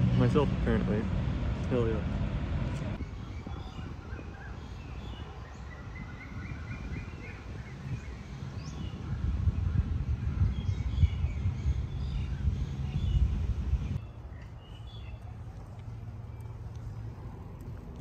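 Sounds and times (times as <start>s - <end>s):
steady low rumble: 0.0s - 4.1s, 8.6s - 18.0s
birds chirping and calling: 3.0s - 15.4s.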